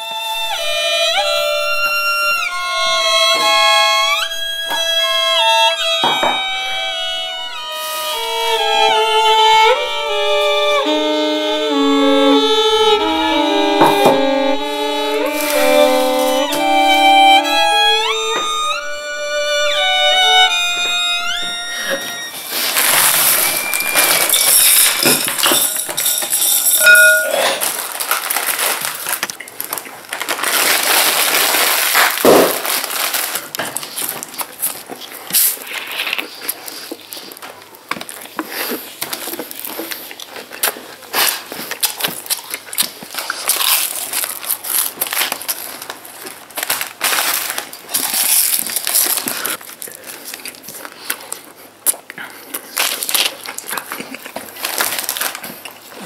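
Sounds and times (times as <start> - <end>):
snack packets crinkling: 21.9 - 26.7, 27.5 - 56.0
chips being crunched and chewed: 22.5 - 26.3, 27.6 - 56.0.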